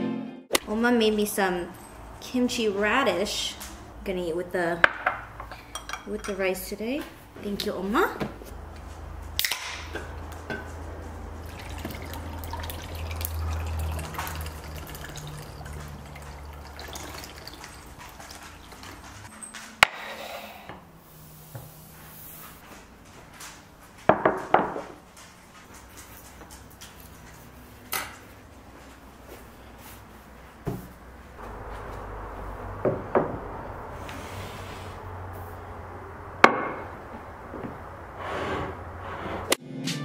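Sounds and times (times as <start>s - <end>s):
drink pouring over ice: 11.4s - 19.0s.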